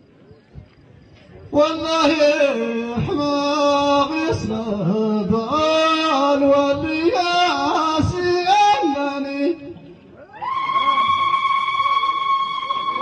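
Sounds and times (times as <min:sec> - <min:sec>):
man chanting into a microphone: 0:01.4 - 0:09.8.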